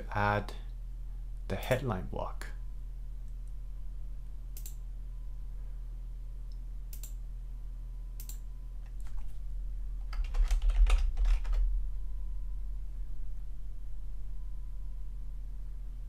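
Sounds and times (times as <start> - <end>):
steady low hum: 0.0 - 16.0
mouse clicks: 4.6 - 4.8, 6.5 - 7.2, 8.2 - 8.4
typing on computer keyboard: 10.0 - 11.6.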